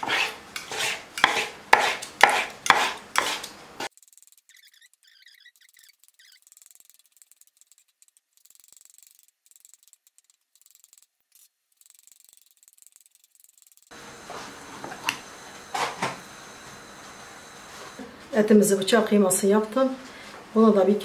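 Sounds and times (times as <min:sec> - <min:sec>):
knife scraping board: 0:00.0 - 0:03.6
knife chopping meat on wooden board: 0:00.8 - 0:03.4.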